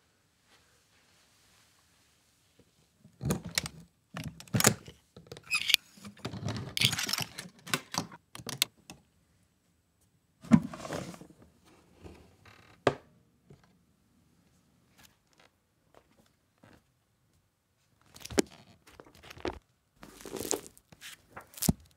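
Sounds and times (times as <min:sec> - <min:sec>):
metallic latch clicks and rattles: 0:06.7 - 0:08.7.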